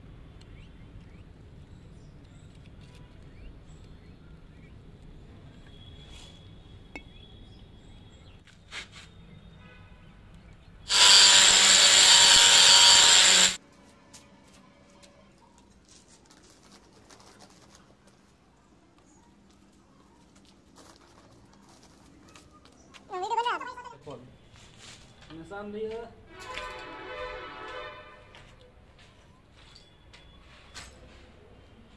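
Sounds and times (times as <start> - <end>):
power cutter cutting stone: 10.9 - 13.6.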